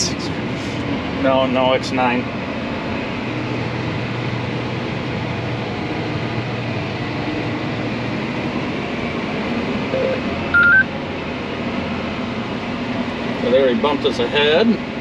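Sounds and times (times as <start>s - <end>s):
tractor engine drone: 0.0s - 15.0s
two-note electronic beep: 10.5s - 10.9s.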